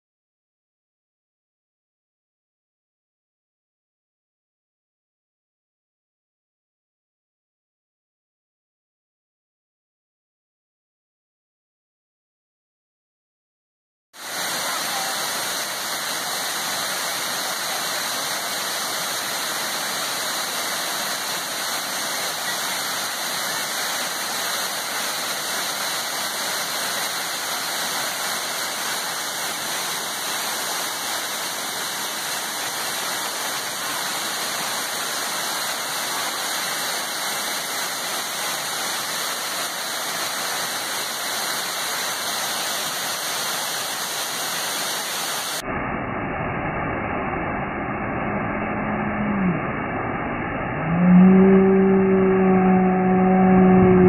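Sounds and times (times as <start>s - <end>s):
waterfall rushing: 14.2s - 45.6s, 51.3s - 54.0s.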